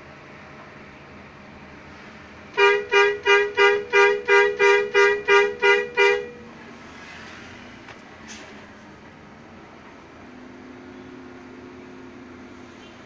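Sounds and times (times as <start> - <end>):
vehicle engine running: 0.0 - 13.0
vehicle horn short toots: 2.5 - 6.5.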